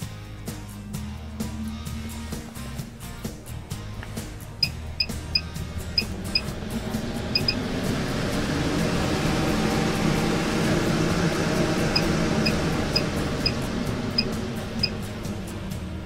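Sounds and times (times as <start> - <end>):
roof vent fan rushing air: 0.0 - 16.0
short high beeps: 7.4 - 7.6.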